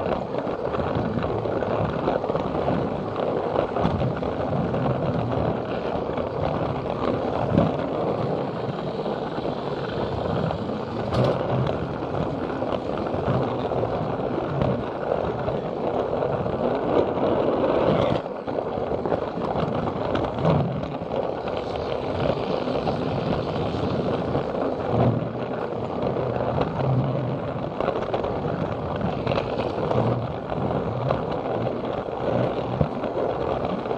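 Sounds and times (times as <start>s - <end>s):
plastic wheels rolling on track: 0.0s - 33.9s
rail joint clicks: 3.6s - 16.0s.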